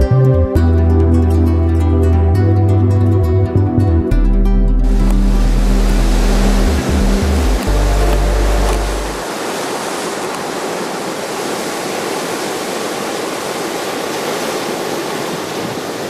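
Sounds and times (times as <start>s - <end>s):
low music notes: 0.0s - 9.2s
surf breaking on shore: 4.9s - 16.0s.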